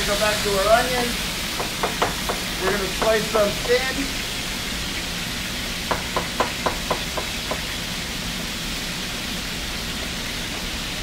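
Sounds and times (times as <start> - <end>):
chicken sizzling in oil: 0.0 - 11.0
knife chopping on plastic board: 1.6 - 3.9, 5.9 - 7.7.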